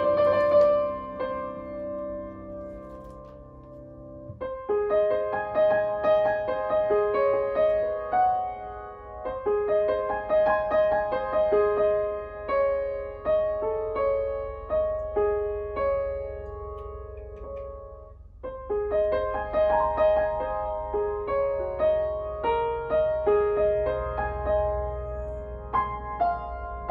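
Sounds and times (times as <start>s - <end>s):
grand piano melody: 0.0s - 26.9s.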